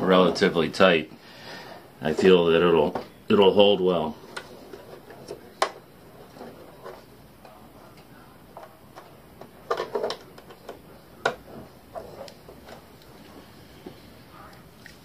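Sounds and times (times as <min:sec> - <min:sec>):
hard plastic parts clicking: 0:08.0 - 0:13.1.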